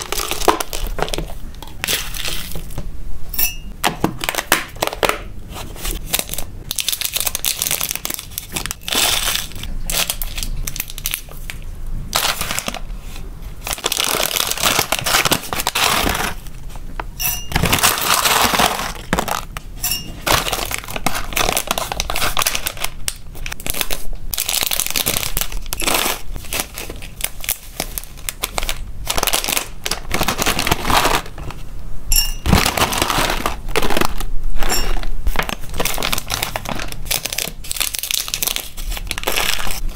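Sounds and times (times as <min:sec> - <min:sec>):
snack pouches crinkling: 0:00.0 - 0:02.7, 0:06.0 - 0:11.6, 0:13.6 - 0:16.4, 0:20.2 - 0:31.6, 0:32.4 - 0:39.9.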